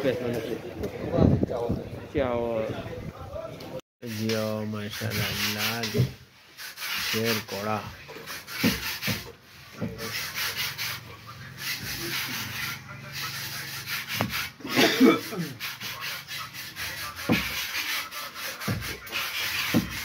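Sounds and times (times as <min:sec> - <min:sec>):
scratchy rubbing and rustling: 0:04.0 - 0:20.0
dull thumps: 0:19.7 - 0:20.0.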